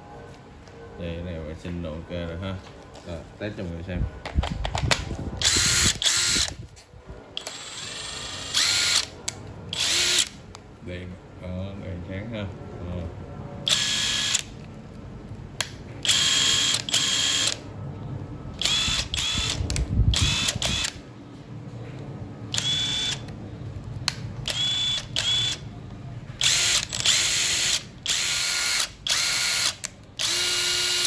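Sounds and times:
impact driver motor whine: 0:05.4 - 0:06.5, 0:07.4 - 0:09.1, 0:22.6 - 0:23.2, 0:24.5 - 0:25.6, 0:26.4 - 0:31.0.

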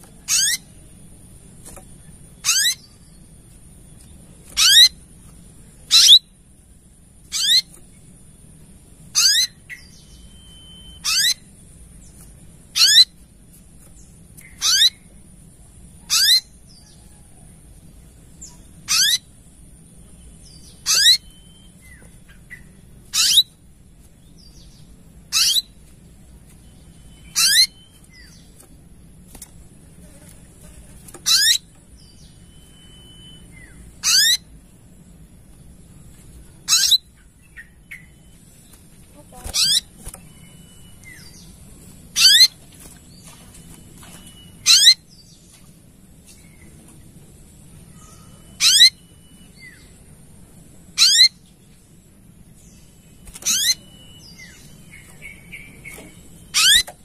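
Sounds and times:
sunbird calling: 0:00.0 - 0:00.9, 0:02.4 - 0:03.2, 0:04.5 - 0:05.0, 0:05.8 - 0:06.4, 0:07.2 - 0:07.8, 0:09.1 - 0:11.6, 0:12.7 - 0:13.1, 0:14.4 - 0:15.2, 0:16.0 - 0:17.5, 0:18.4 - 0:19.3, 0:20.2 - 0:23.6, 0:24.4 - 0:25.9, 0:26.5 - 0:28.6, 0:30.0 - 0:34.6, 0:36.6 - 0:45.6, 0:47.7 - 0:50.0, 0:50.9 - 0:51.6, 0:52.6 - 0:57.0.

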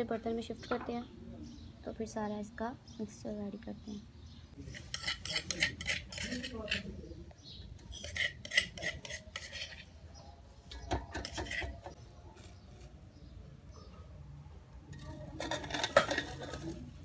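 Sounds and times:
metal spoon clinking in steel bowl: 0:04.8 - 0:06.9, 0:07.9 - 0:09.8.

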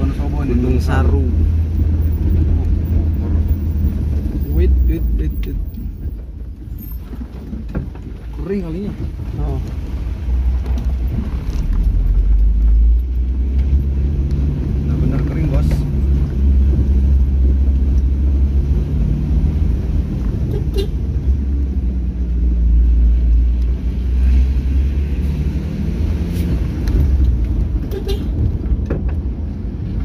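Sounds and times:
vehicle engine and tyre rumble: 0:00.0 - 0:30.0
short knocks and rattles: 0:05.7 - 0:09.9.

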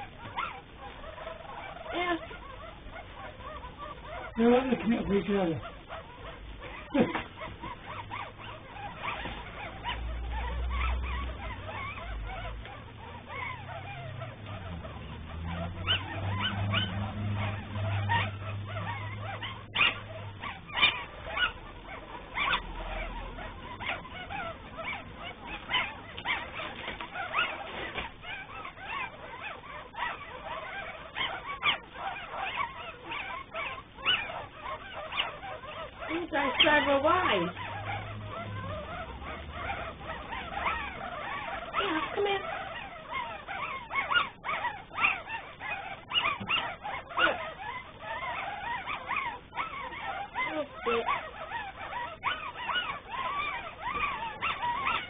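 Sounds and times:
puppies squeaking and whimpering: 0:00.0 - 0:55.0.

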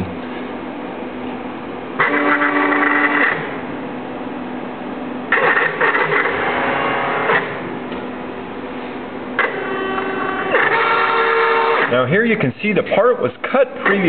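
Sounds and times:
drive motors whining: 0:01.9 - 0:03.7, 0:05.3 - 0:08.4, 0:09.3 - 0:12.0.

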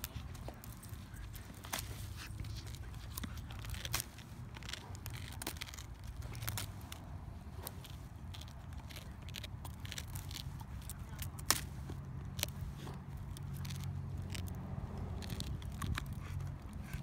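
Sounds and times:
dogs chewing stick: 0:00.0 - 0:17.0
wood snapping: 0:07.6 - 0:12.6.

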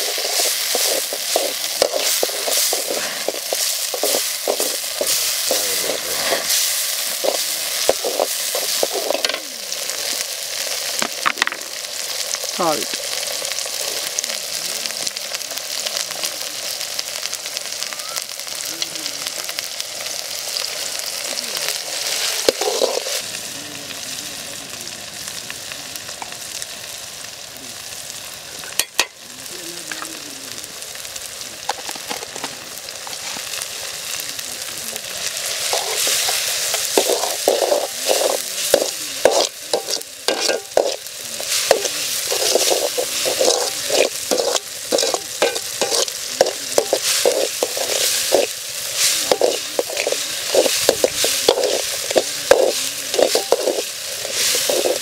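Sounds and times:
tomatoes sizzling in oil: 0:00.0 - 0:55.0
metal spoon scraping pan: 0:35.6 - 0:55.0.

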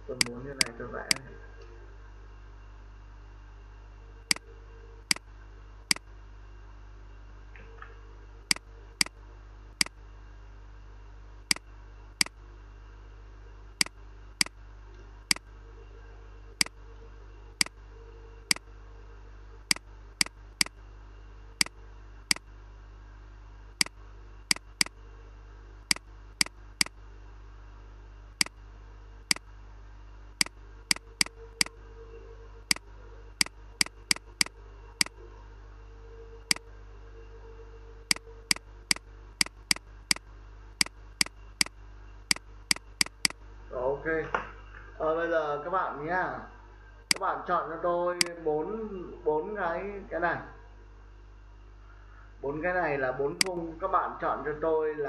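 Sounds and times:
low electrical hum: 0:00.0 - 0:55.0
mouse buttons clicking: 0:00.1 - 0:01.2, 0:24.5 - 0:25.0, 0:30.4 - 0:31.8, 0:42.3 - 0:43.4.

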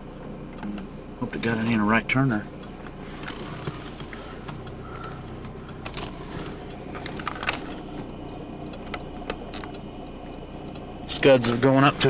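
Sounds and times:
engine idling: 0:00.0 - 0:12.0
small clicks and knocks: 0:08.7 - 0:10.9.

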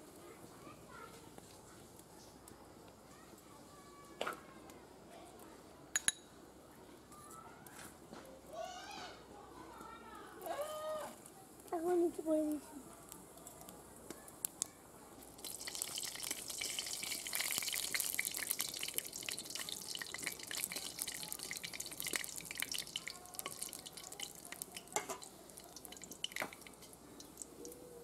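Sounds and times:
seeds sizzling in hot oil: 0:10.4 - 0:28.0.

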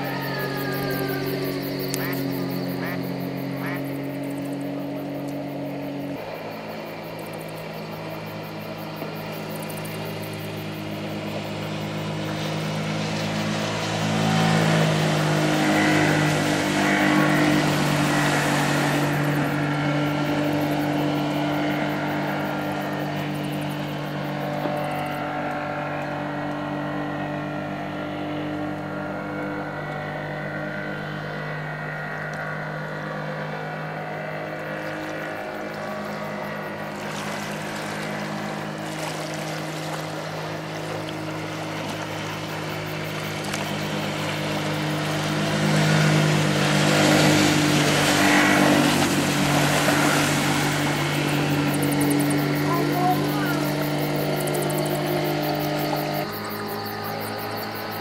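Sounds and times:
outboard motor running: 0:00.0 - 0:58.0.

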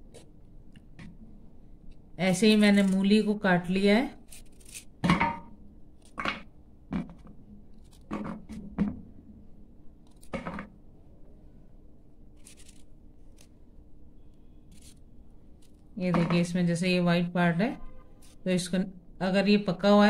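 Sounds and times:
knife crunching through carrot: 0:04.2 - 0:05.0, 0:12.4 - 0:13.5.

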